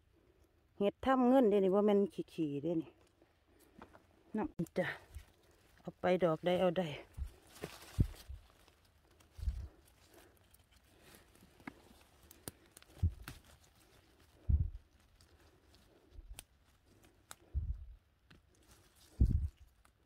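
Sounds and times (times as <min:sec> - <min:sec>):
twigs and leaves crackling: 0:02.4 - 0:20.0
dull low thumps: 0:14.4 - 0:14.8, 0:17.5 - 0:18.0, 0:19.2 - 0:19.6.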